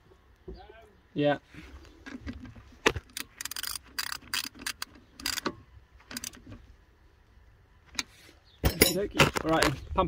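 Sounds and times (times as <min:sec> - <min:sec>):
ratchet wrench clicking: 0:03.2 - 0:05.5.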